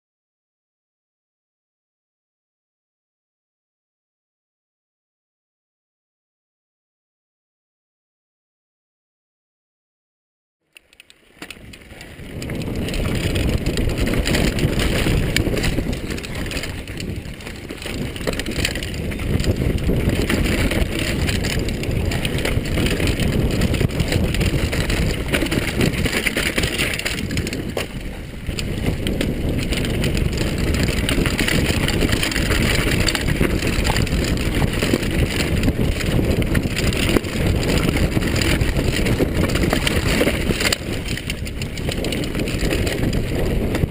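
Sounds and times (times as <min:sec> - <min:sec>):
bike rattling on dirt: 0:10.8 - 0:43.9
wind buffeting microphone: 0:11.4 - 0:43.9.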